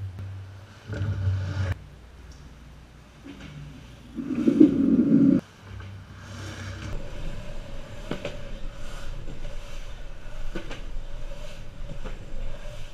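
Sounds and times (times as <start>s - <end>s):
wheels rolling on concrete: 4.1s - 12.9s.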